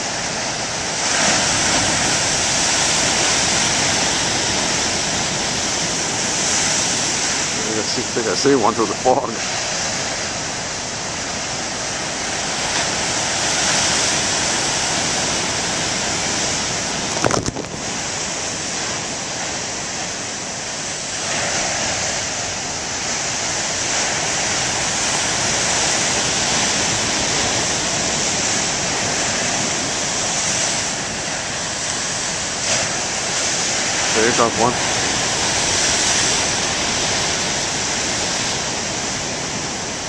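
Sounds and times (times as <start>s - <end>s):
surf breaking on rocks: 0.0s - 40.0s.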